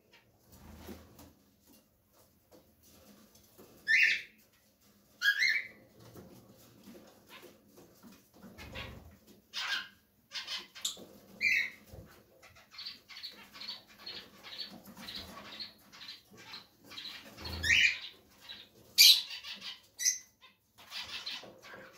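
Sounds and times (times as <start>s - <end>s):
lovebirds chirping: 12.5s - 21.9s.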